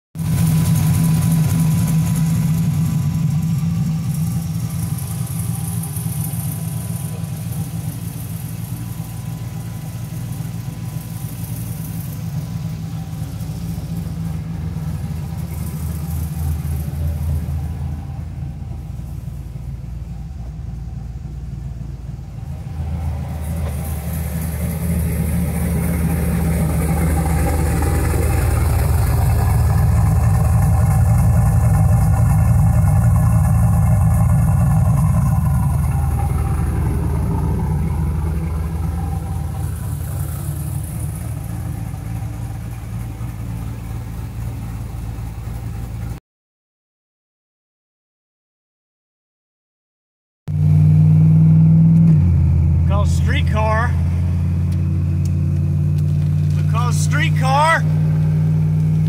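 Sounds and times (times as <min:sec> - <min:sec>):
car engine idling: 0:00.2 - 0:46.2, 0:50.5 - 0:59.0.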